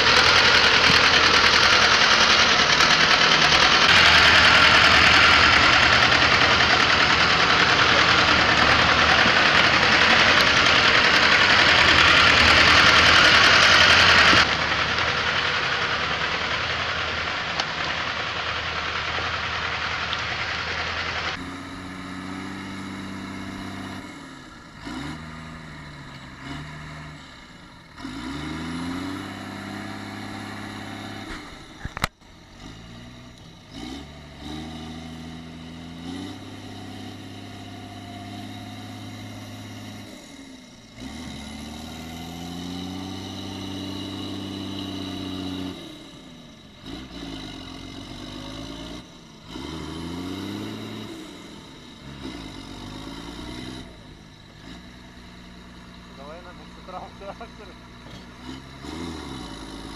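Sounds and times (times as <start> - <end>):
tractor diesel engine revving: 0.0 - 59.9.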